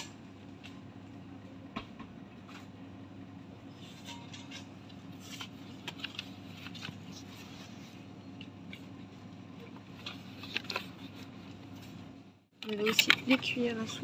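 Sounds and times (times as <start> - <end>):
steady low hum: 0.0 - 14.0
goods rustling on shop shelf: 3.6 - 14.0.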